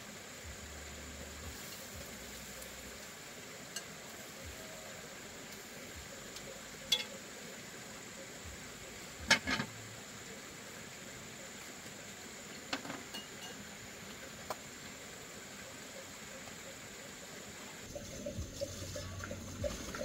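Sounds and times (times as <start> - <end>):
ladle clinking on pot and bowl: 13.1 - 13.6.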